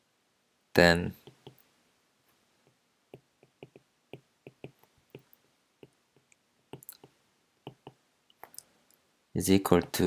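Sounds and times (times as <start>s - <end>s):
stylus tapping on glass screen: 2.6s - 8.0s.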